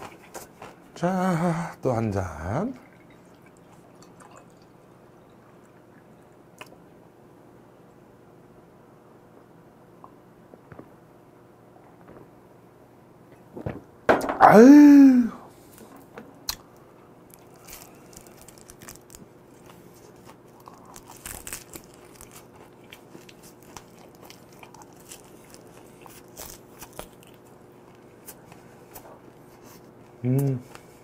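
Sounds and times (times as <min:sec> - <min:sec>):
chewing and crunching fish: 0:00.0 - 0:01.0, 0:17.3 - 0:29.5.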